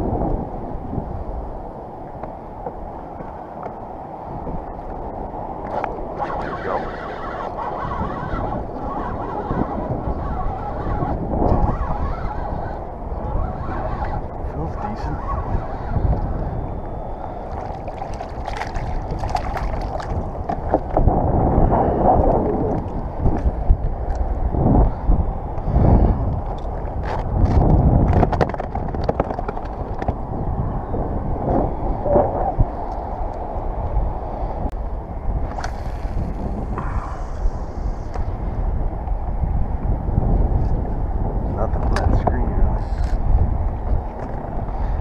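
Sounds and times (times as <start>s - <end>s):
wind buffeting microphone: 0.0s - 45.0s
water lapping against kayak hull: 17.5s - 21.1s.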